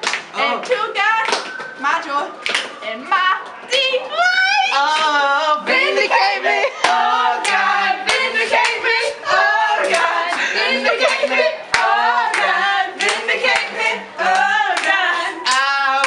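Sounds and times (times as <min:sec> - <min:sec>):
hands clapping a beat: 0:00.0 - 0:01.8, 0:02.4 - 0:02.8, 0:06.8 - 0:16.0
young voices singing: 0:03.6 - 0:16.0.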